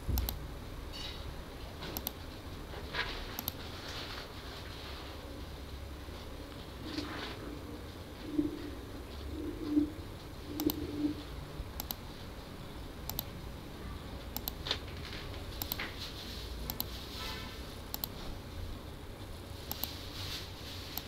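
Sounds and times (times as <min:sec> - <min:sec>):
mouse double-clicks: 0:02.0 - 0:02.2, 0:10.5 - 0:11.1, 0:11.8 - 0:12.0, 0:13.1 - 0:13.3, 0:14.3 - 0:14.6, 0:17.9 - 0:18.2, 0:19.7 - 0:20.0
bird cooing: 0:07.1 - 0:11.2.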